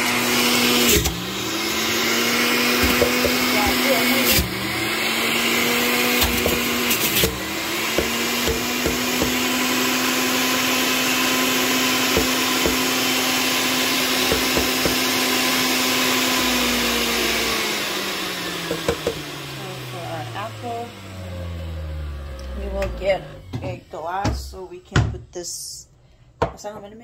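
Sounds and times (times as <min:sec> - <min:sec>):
juicer motor whining: 0:00.0 - 0:23.9
knocks in juicer: 0:02.7 - 0:03.5, 0:07.9 - 0:09.5, 0:12.1 - 0:12.9, 0:14.2 - 0:15.1, 0:18.6 - 0:19.3.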